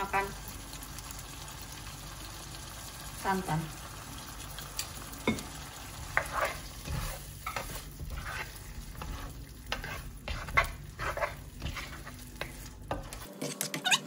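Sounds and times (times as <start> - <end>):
spatula scraping and sloshing sauce: 5.9 - 13.3.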